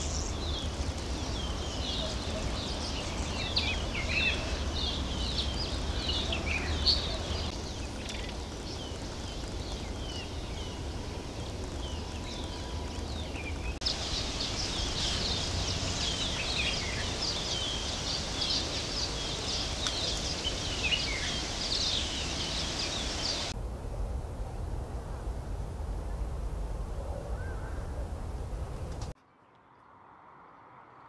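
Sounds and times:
small birds chirping: 0:00.0 - 0:23.6.

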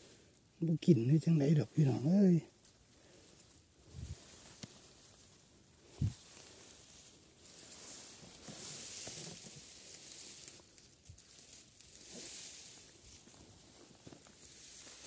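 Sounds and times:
dry grass rustling: 0:00.0 - 0:15.0.

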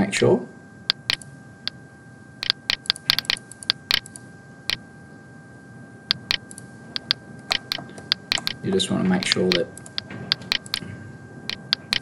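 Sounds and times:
computer mouse clicking: 0:00.9 - 0:01.3, 0:02.4 - 0:04.8, 0:06.1 - 0:08.6, 0:09.2 - 0:10.8, 0:11.5 - 0:12.0.

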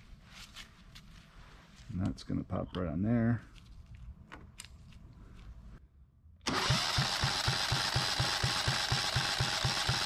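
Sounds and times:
diesel engine cranking: 0:06.4 - 0:10.0
starter motor whine: 0:06.4 - 0:10.0.

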